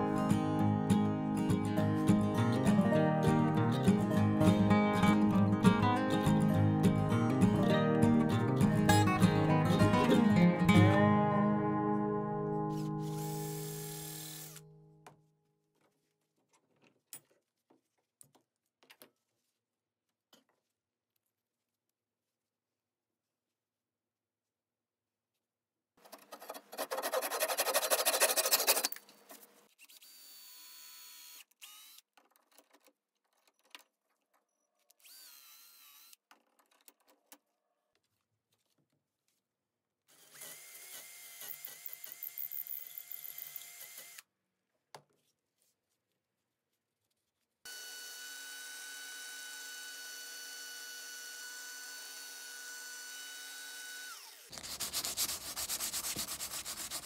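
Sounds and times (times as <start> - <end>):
rough power tool whir: 13.1 - 14.7, 29.9 - 32.0, 35.0 - 36.2, 47.7 - 54.7.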